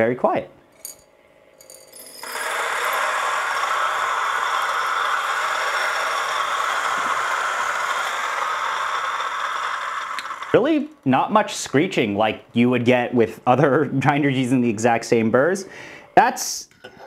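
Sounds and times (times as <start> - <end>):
electric coffee grinder whirring: 1.6 - 11.0.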